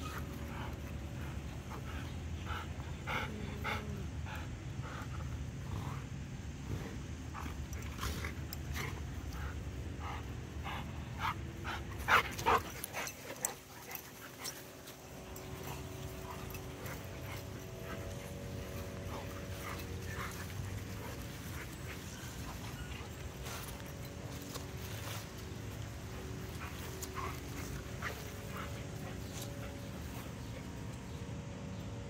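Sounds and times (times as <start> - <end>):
dogs playing: 0.0 - 32.0.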